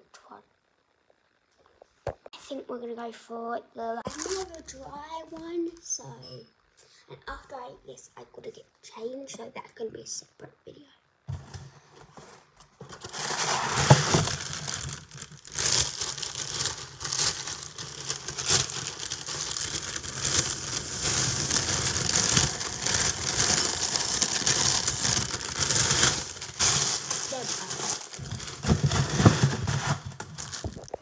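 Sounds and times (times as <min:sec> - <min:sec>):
plastic bag crinkling: 0:04.1 - 0:04.6, 0:13.0 - 0:31.0.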